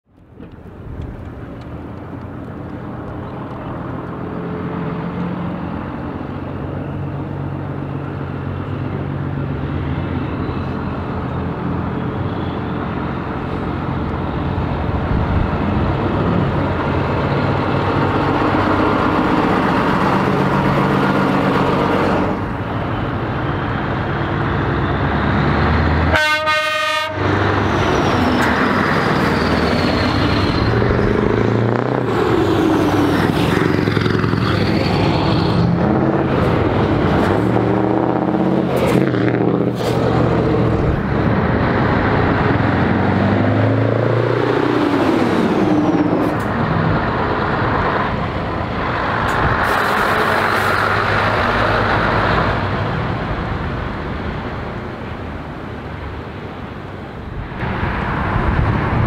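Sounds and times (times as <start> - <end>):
trucks driving past: 0.1 - 59.0
truck air horn: 26.1 - 27.4.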